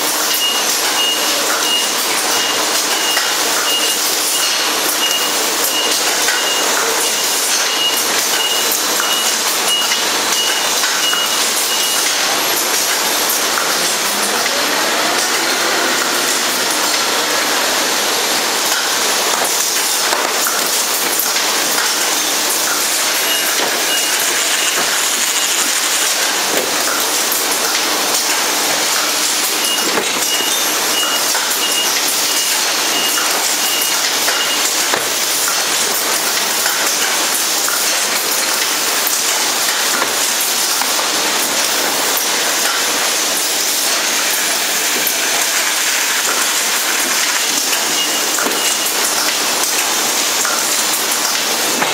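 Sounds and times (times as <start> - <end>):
machinery hissing and clattering: 0.0 - 51.9
high beeps: 0.3 - 12.2, 23.0 - 26.0, 29.5 - 34.9.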